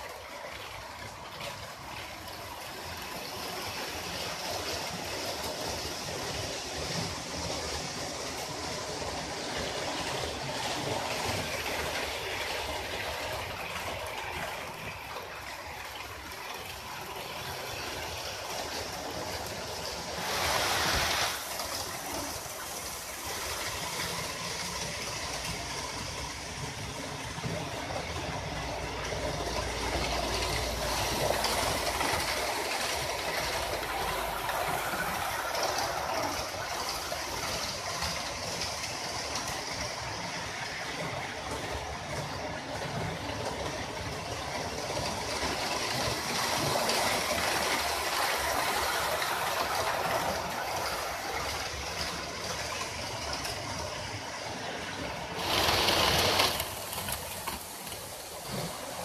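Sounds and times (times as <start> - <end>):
low rumble of passing train: 0.0 - 59.0
model train wheels rushing on track: 0.0 - 59.0.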